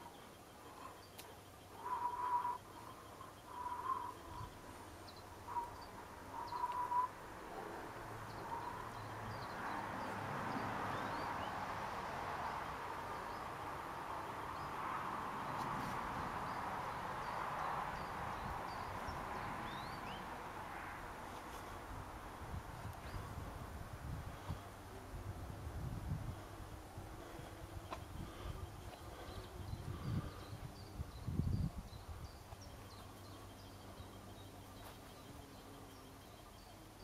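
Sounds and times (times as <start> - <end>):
birds chirping and calling: 0.0 - 10.2
whistled bird notes: 5.5 - 7.1.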